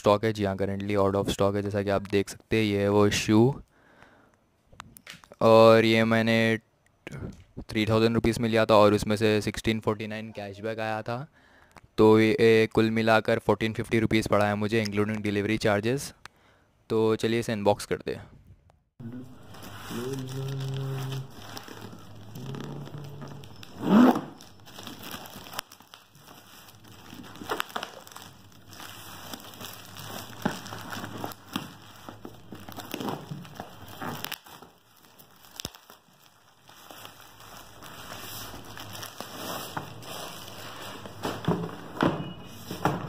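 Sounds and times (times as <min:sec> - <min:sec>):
plastic and bubble wrap crinkling: 0:19.0 - 0:43.0.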